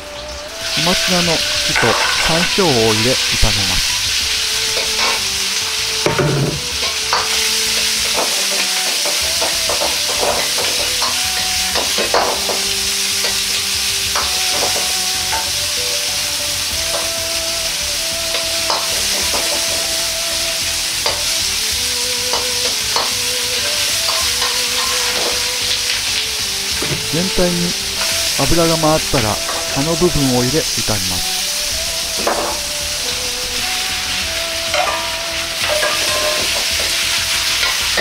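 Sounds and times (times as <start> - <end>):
greens sizzling in hot oil: 0.0 - 38.0
metal ladle scraping a wok: 0.5 - 2.9, 3.8 - 5.4, 6.0 - 15.6, 20.8 - 21.5, 22.3 - 26.1, 27.8 - 28.4, 34.3 - 38.0.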